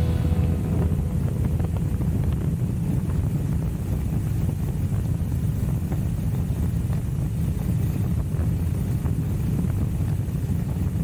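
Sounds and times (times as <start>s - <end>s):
motorcycle engine rumbling: 0.0s - 4.5s
wind buffeting microphone: 0.0s - 11.0s.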